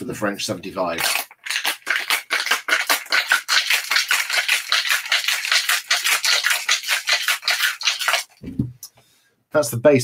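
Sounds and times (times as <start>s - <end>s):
ice rattling in cocktail shaker: 0.9s - 8.4s.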